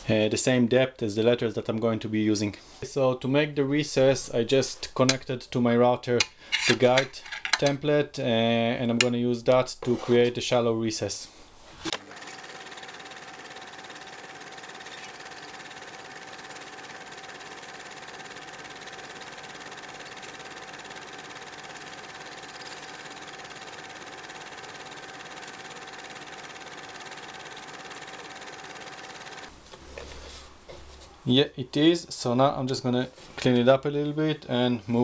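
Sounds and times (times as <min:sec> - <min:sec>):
electric router cutting: 0:11.9 - 0:29.5
router bit whine: 0:11.9 - 0:29.5.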